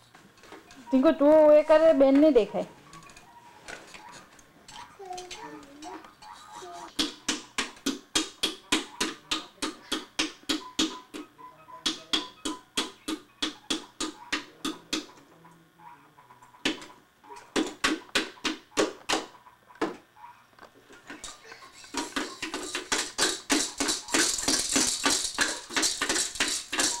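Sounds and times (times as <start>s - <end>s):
baby's toy rattling: 21.1s - 27.0s.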